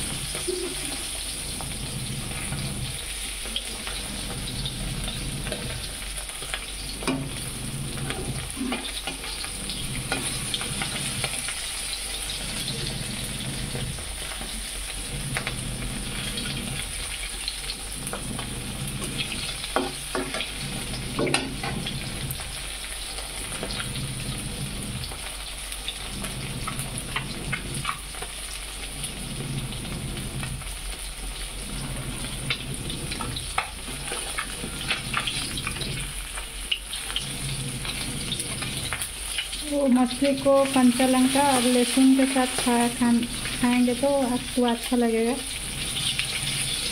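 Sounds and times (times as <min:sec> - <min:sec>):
fish sizzling in oil: 0:00.0 - 0:46.9
oil popping: 0:23.2 - 0:40.8.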